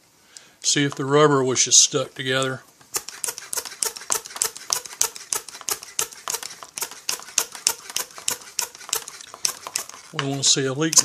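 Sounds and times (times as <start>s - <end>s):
hand pump clicking: 3.0s - 11.0s.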